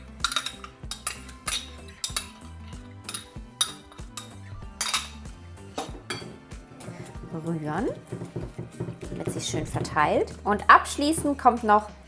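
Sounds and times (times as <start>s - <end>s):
metal spoon scraping: 0.2s - 5.2s
spoon clinking on glass: 0.2s - 5.2s.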